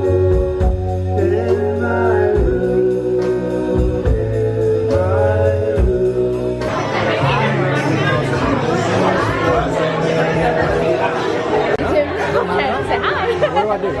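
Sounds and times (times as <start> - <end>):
drums: 0.0 - 11.1
voices singing together: 0.0 - 13.5
acoustic guitar: 0.0 - 14.0
bass: 0.0 - 14.0.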